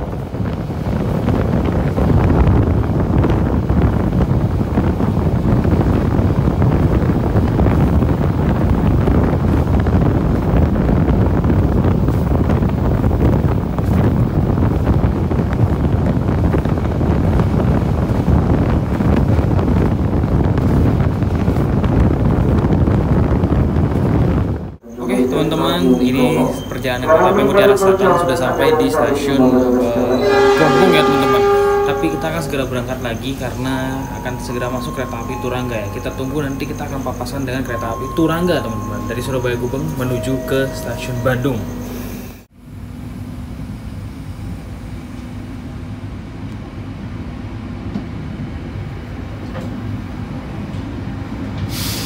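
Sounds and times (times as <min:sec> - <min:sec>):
wind buffeting microphone: 0:00.0 - 0:24.9
train rumbling at speed: 0:00.0 - 0:52.0.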